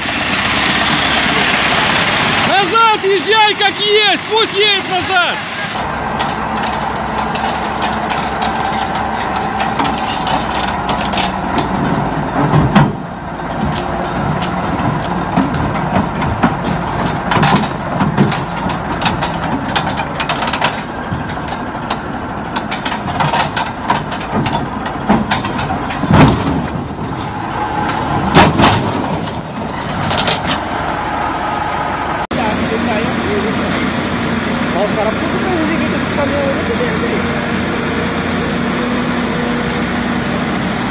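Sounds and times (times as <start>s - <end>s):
metal clanks from tracks and ramps: 0.0s - 32.3s
bulldozer diesel engine under load: 0.0s - 40.9s.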